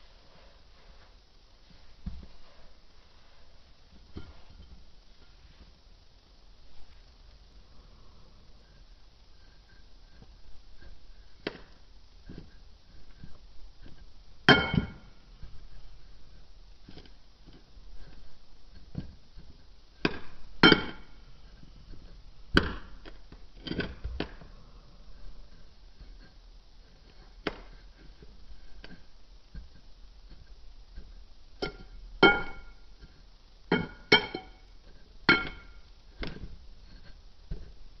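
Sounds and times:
glass ringing: 0:14.5 - 0:15.1, 0:31.6 - 0:32.8, 0:33.7 - 0:34.7, 0:35.3 - 0:35.8.

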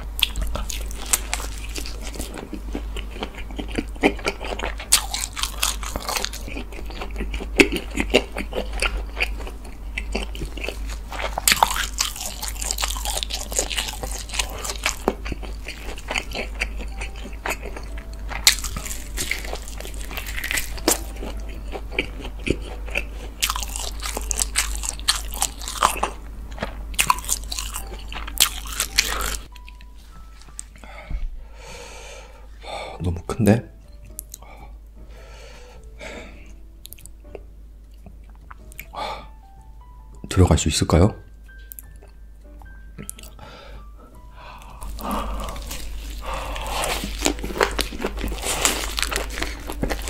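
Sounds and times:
chewing crunchy food: 0:00.0 - 0:29.9, 0:34.0 - 0:34.8, 0:36.4 - 0:39.1, 0:41.5 - 0:42.2, 0:43.0 - 0:43.4, 0:44.6 - 0:50.0.

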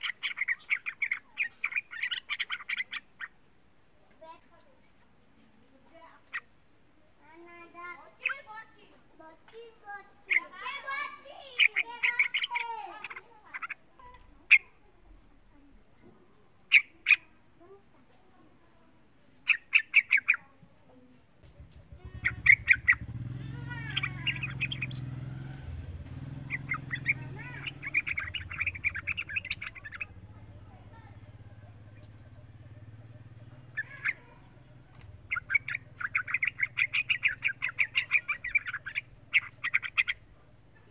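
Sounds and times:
bird singing: 0:00.0 - 0:03.5, 0:04.2 - 0:05.0, 0:06.0 - 0:06.5, 0:07.5 - 0:08.9, 0:09.5 - 0:14.9, 0:16.0 - 0:17.5, 0:19.3 - 0:40.9
bulbul chattering: 0:00.0 - 0:04.9, 0:06.0 - 0:17.8, 0:19.4 - 0:20.6, 0:21.4 - 0:40.9
sharp bird call notes: 0:22.0 - 0:30.2, 0:32.0 - 0:40.2.

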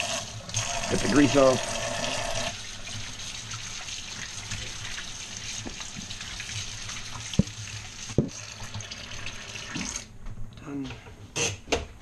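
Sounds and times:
faucet running: 0:00.0 - 0:10.1.

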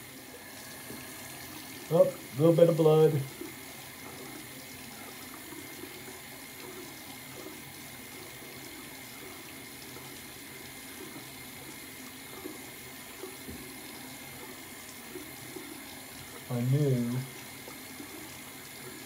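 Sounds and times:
tap running into sink: 0:11.0 - 0:16.5.

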